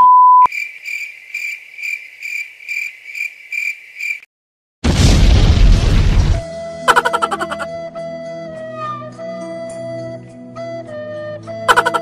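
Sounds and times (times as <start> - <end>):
cricket chirp: 0.4 - 4.3.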